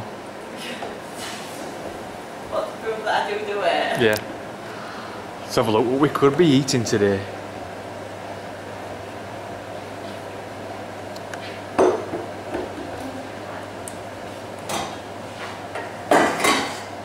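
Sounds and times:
pans and utensils clattering: 16.1 - 16.9.

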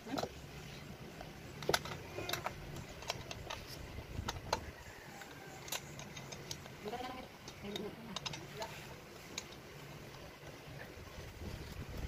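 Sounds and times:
low steady hum: 0.0 - 12.0
small metal clicks and clinks: 1.6 - 8.7.

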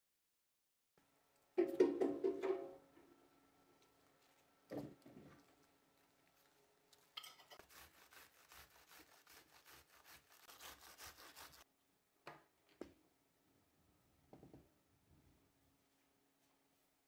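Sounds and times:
cabbage grating on box grater: 7.6 - 11.6.

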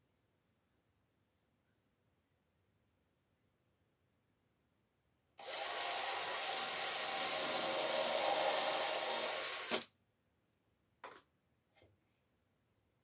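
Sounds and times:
power drill driving a screw: 5.4 - 9.9.

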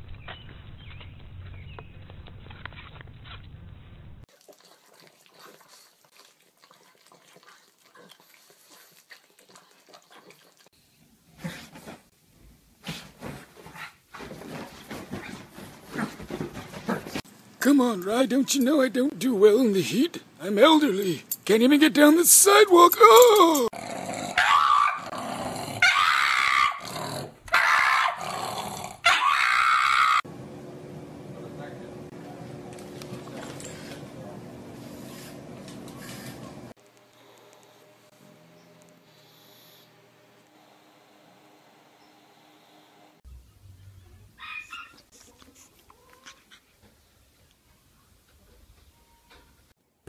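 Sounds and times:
wet licking sounds: 4.3 - 10.8
dog call: 25.8 - 26.8, 29.0 - 30.2.

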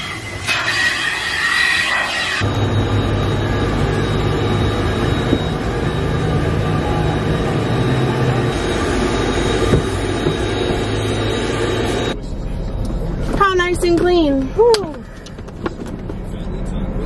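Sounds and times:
thin high whine: 0.0 - 14.0
vacuum motor drone: 1.6 - 12.2.

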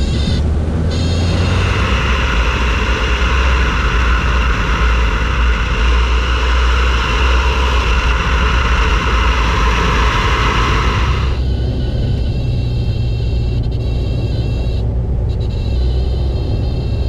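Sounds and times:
rushing airflow: 0.0 - 12.5
aircraft engine and propeller drone: 0.0 - 17.0.

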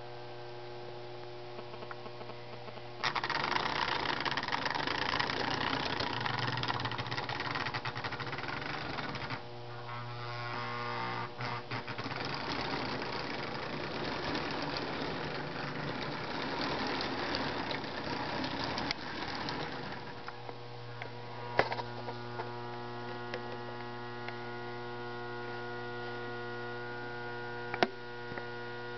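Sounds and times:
electrical mains hum: 0.0 - 28.9
toy train motor whirring: 3.0 - 9.4, 10.2 - 20.3
wheels rattling over rails: 3.0 - 9.4, 11.8 - 20.4.

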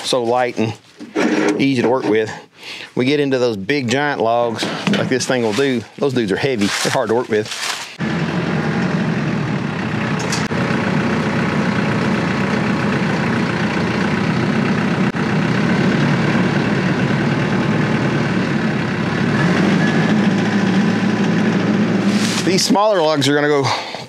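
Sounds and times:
engine idling: 8.0 - 23.8.

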